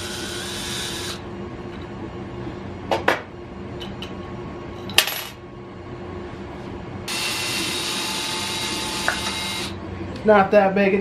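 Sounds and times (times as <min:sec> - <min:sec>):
cordless drill running: 0:00.0 - 0:01.2, 0:07.1 - 0:09.8.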